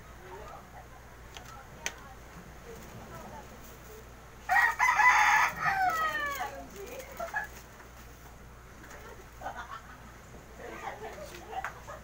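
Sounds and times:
rooster crowing: 0:04.5 - 0:06.6.

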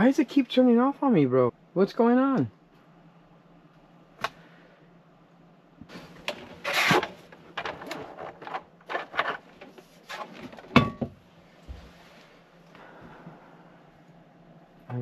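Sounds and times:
low steady hum: 0:00.0 - 0:15.0
plastic rubbing and scraping: 0:06.2 - 0:10.6.

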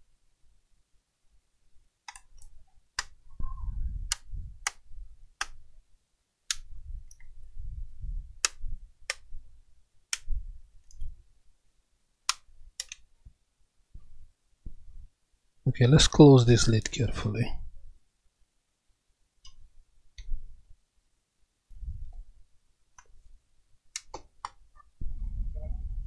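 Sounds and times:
plastic keyboard clicks: 0:02.1 - 0:03.2, 0:04.1 - 0:04.8, 0:12.3 - 0:13.0, 0:24.0 - 0:24.6.

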